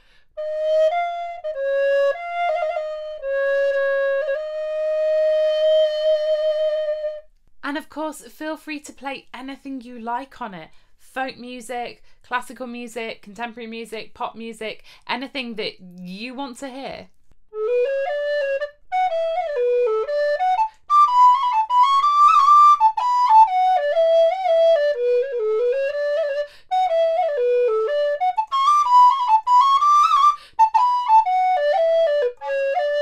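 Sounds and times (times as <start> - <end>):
player breaths: 0.0 - 0.3
recorder solo melody: 17.6 - 33.0.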